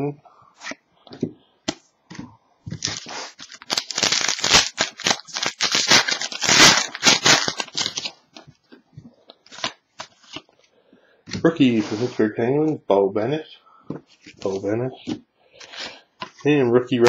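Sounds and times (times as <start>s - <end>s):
plastic wrapper crackling: 2.7s - 8.5s, 9.3s - 10.5s.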